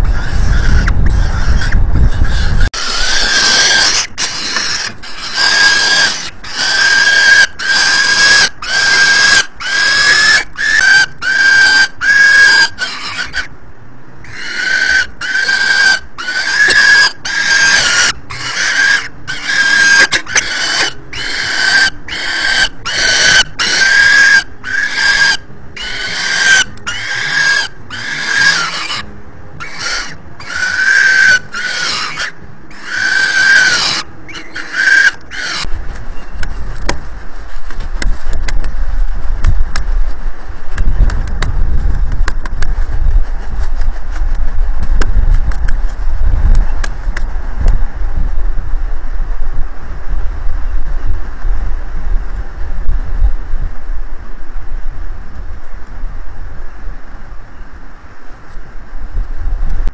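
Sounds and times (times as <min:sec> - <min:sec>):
falcon chick begging calls: 0:00.1 - 0:13.5, 0:14.2 - 0:36.3.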